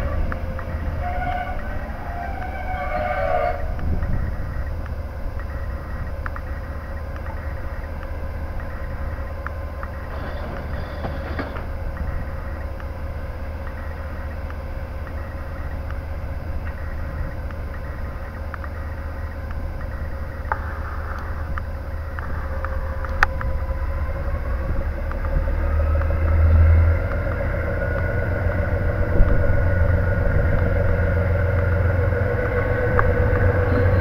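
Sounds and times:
diesel engine droning: 0:00.0 - 0:34.0
steady hum: 0:00.0 - 0:34.0
faint ticks: 0:16.6 - 0:23.6.

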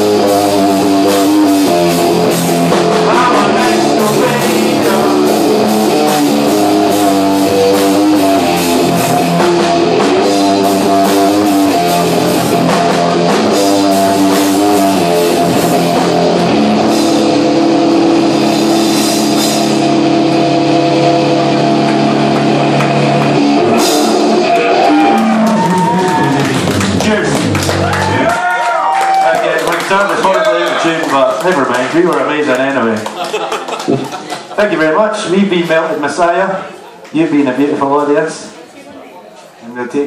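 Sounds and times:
electric guitar chords: 0:00.0 - 0:28.3
live rock band playing: 0:00.0 - 0:34.8.

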